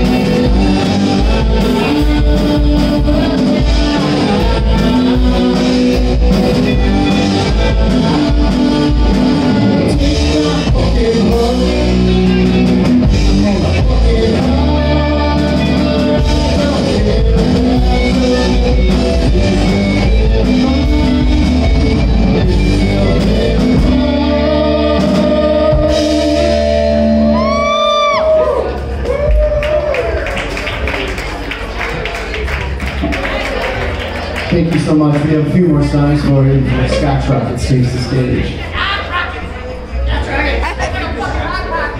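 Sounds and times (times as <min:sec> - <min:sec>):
person singing: 0:00.0 - 0:28.4
live rock band playing: 0:00.0 - 0:41.9.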